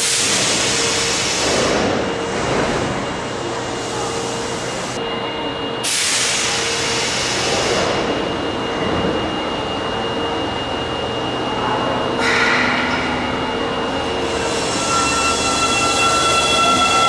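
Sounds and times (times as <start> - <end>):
subway train whine and hum: 0.0 - 17.0
brief train squeal: 12.2 - 17.0.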